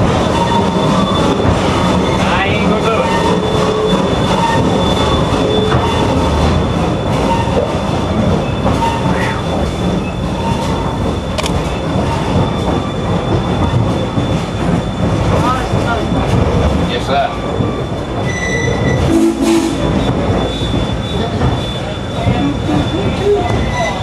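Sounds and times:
train cars rumbling on rails: 0:00.0 - 0:24.0
faint wheel squeals: 0:17.1 - 0:19.1.

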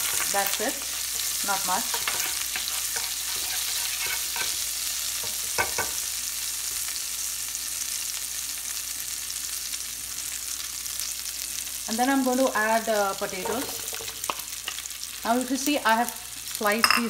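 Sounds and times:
spices sizzling in butter: 0:00.0 - 0:17.0
wooden spoon knocking pan: 0:05.2 - 0:06.0.

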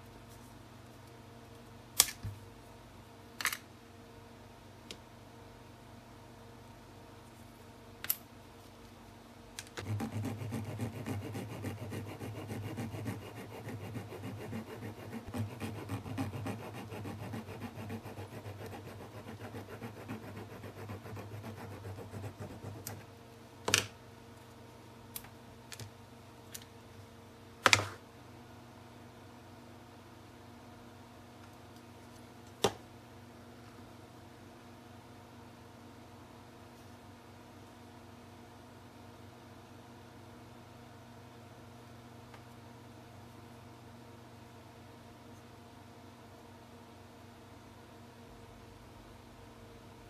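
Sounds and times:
blade rasping on plastic: 0:09.8 - 0:23.0.

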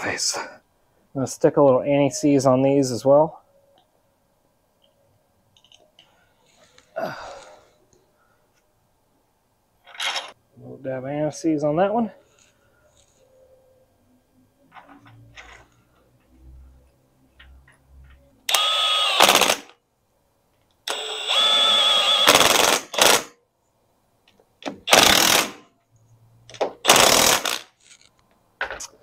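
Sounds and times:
impact wrench whining and hammering: 0:18.5 - 0:19.7, 0:20.9 - 0:23.4, 0:24.6 - 0:25.7, 0:26.5 - 0:28.0.

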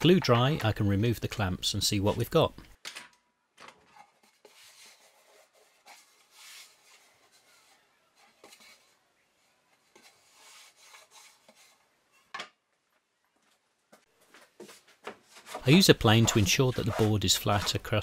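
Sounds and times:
hands rubbing wooden board: 0:14.6 - 0:18.0.

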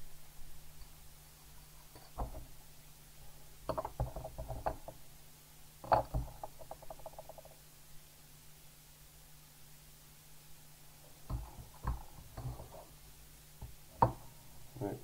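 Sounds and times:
small parts knocking on mat: 0:03.7 - 0:05.0, 0:05.8 - 0:07.6, 0:11.3 - 0:12.8, 0:13.6 - 0:14.3.

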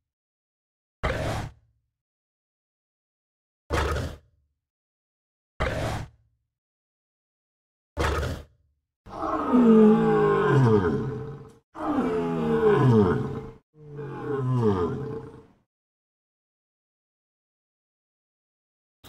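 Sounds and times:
large animal roaring: 0:09.1 - 0:15.6.

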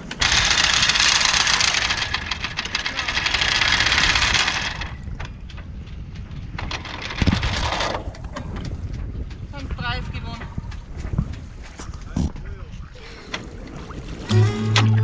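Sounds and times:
anchor chain rattling: 0:00.0 - 0:08.0.

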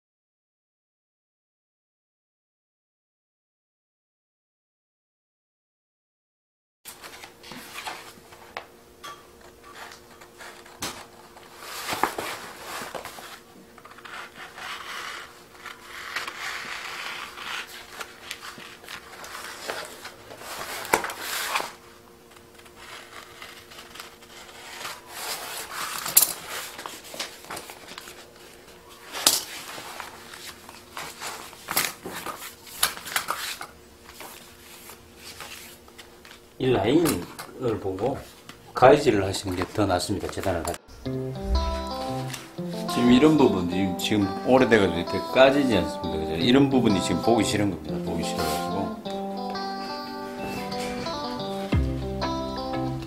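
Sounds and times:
vinyl sheet rustling and crinkling: 0:06.9 - 0:08.7, 0:09.4 - 0:40.8, 0:41.4 - 0:52.6
scissors cutting vinyl sheet: 0:09.6 - 0:36.4.

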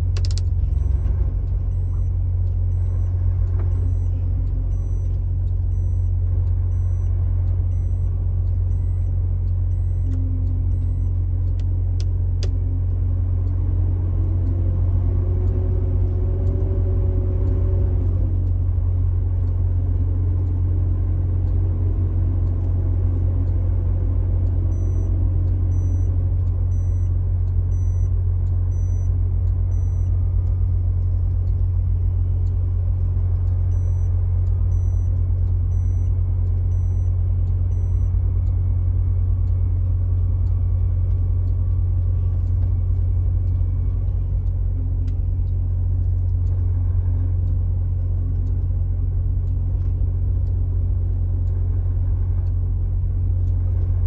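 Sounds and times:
car engine and tyre rumble: 0:00.0 - 0:54.0
faint high beeps: 0:00.7 - 0:11.3, 0:24.7 - 0:28.1, 0:28.7 - 0:30.2, 0:33.7 - 0:38.2.

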